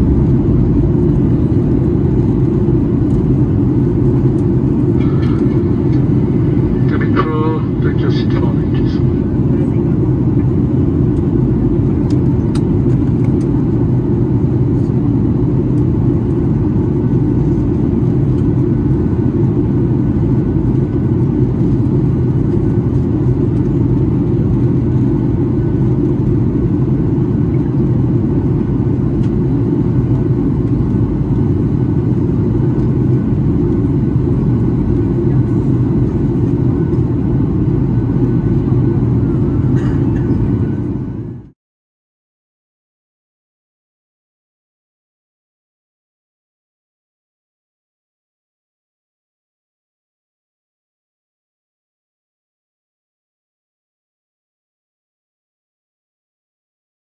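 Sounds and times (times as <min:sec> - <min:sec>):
aircraft cabin engine drone: 0:00.0 - 0:41.6.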